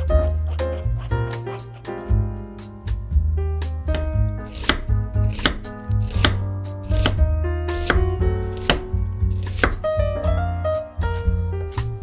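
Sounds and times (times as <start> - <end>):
background music: 0.0 - 12.0
knife knocking cutting board: 3.9 - 9.8.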